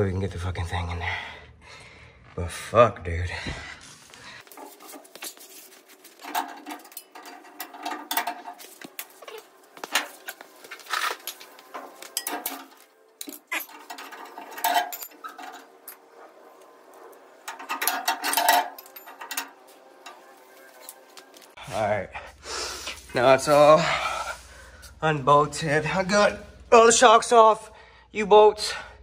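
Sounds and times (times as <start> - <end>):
wrenches clinking on metal bolts: 6.0 - 21.5.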